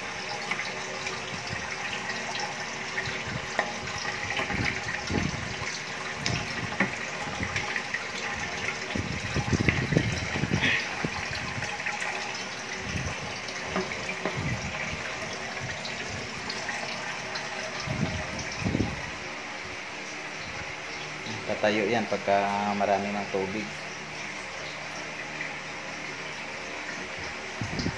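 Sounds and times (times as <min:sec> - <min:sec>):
water splashing into aquarium: 0:00.0 - 0:19.2.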